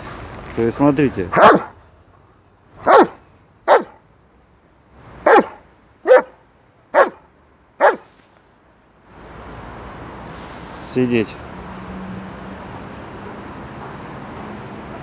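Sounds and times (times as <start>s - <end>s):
dog barking: 1.3s - 1.8s, 2.8s - 4.0s, 5.2s - 8.1s.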